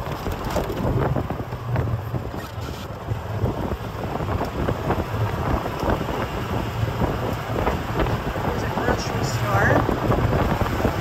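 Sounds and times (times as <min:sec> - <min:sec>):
cart rumbling on road: 0:00.0 - 0:11.0
wind buffeting microphone: 0:00.0 - 0:11.0.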